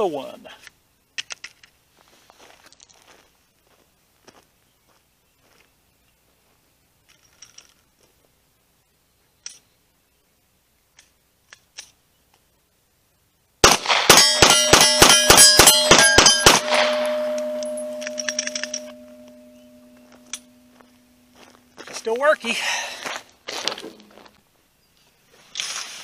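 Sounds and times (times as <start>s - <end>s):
pistol shots: 13.6s - 19.3s
metallic ringing: 14.1s - 21.6s.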